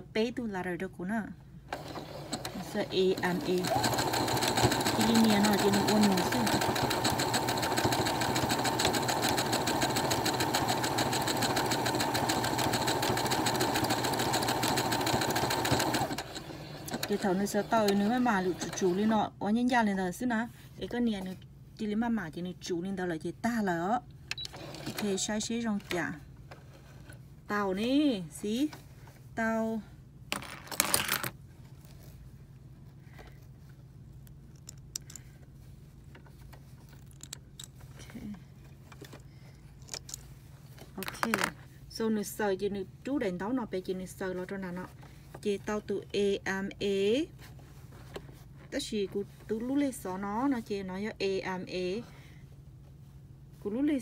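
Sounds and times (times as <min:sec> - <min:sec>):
sewing machine stitching: 0:01.7 - 0:19.1, 0:24.4 - 0:25.2.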